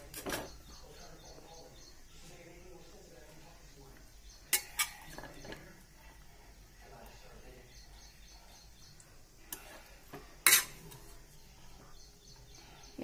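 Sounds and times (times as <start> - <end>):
utensil scraping food in a pan: 4.2 - 12.6
utensil clacking against pan: 4.4 - 5.7.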